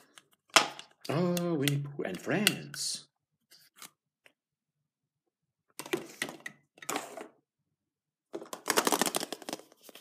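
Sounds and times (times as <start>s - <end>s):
plastic eggs clicking and clattering: 8.3s - 9.8s.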